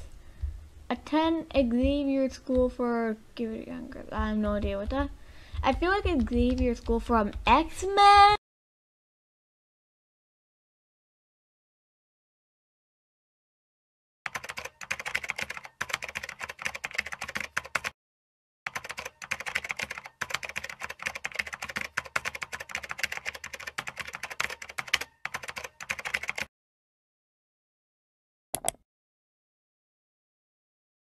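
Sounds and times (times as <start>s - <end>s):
fast typing on keyboard: 14.3s - 18.0s, 18.7s - 26.5s.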